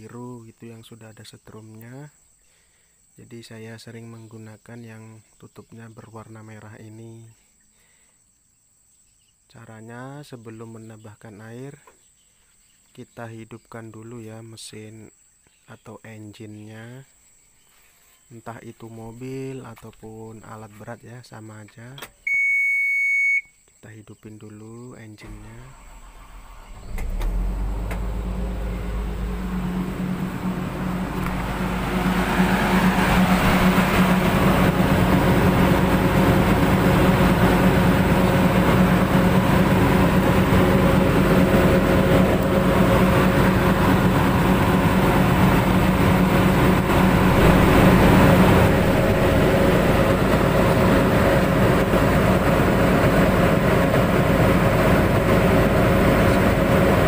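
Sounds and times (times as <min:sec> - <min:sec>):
excavator diesel engine running: 0:25.2 - 0:57.0.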